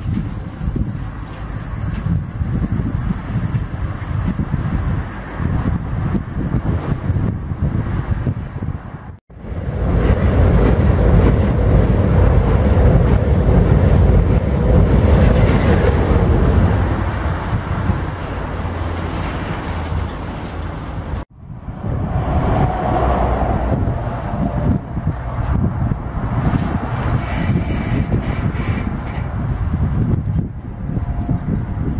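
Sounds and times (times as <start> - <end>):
train wheels rumbling on rails: 0.0 - 31.9
wind on microphone: 0.0 - 31.9.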